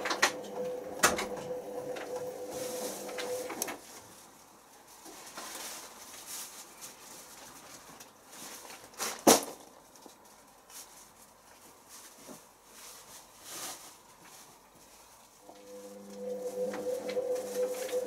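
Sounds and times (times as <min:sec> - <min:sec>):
washing machine drum motor humming: 0:00.0 - 0:03.8, 0:15.4 - 0:18.0.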